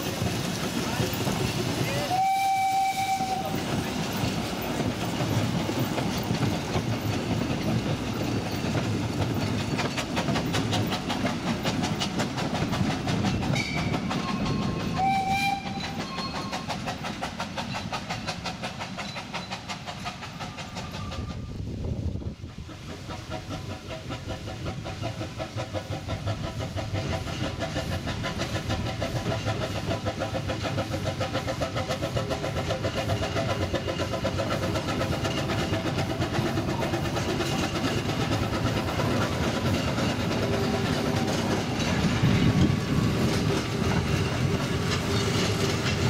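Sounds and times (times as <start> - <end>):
steam train running: 0.0 - 46.0
train whistle blast: 2.0 - 3.6, 14.5 - 16.6.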